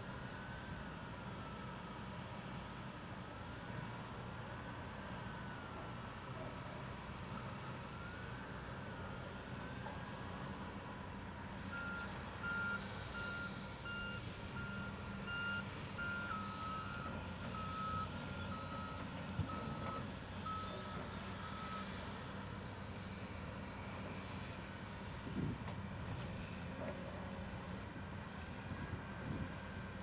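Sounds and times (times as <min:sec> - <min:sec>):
diesel engine running: 0:09.6 - 0:24.1.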